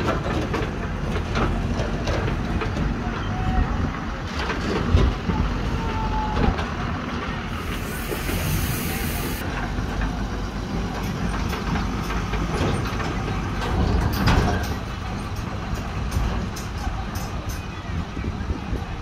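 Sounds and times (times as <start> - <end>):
diesel engines rumbling: 0.0 - 19.0
hiss: 7.5 - 9.4.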